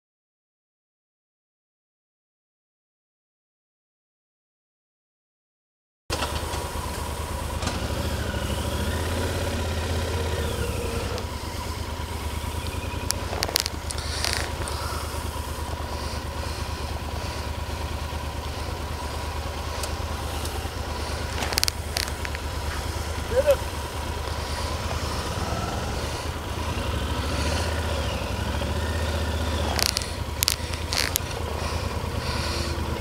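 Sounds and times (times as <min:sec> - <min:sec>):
motorcycle engine running: 0:06.1 - 0:33.0
sharp clicks: 0:09.9 - 0:17.6, 0:18.4 - 0:23.3, 0:24.2 - 0:32.7.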